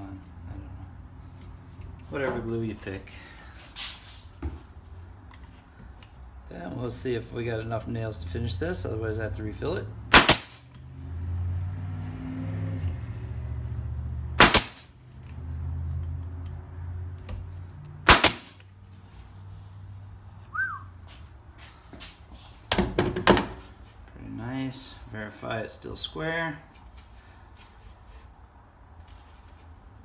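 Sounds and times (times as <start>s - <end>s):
nail gun firing into plywood: 10.1s - 10.6s, 14.4s - 14.9s, 18.0s - 18.6s.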